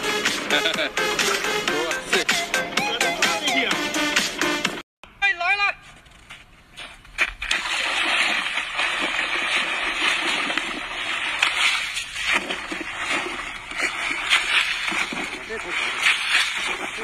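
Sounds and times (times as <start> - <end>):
water splashing and sloshing: 6.8 - 17.0.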